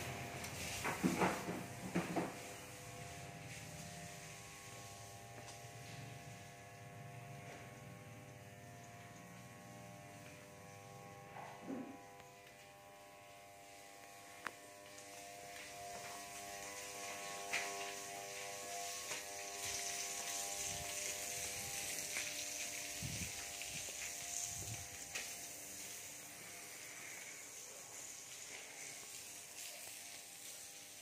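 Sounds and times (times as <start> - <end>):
high hiss: 0.0 - 6.5, 13.7 - 31.0
electrical buzz: 0.0 - 31.0.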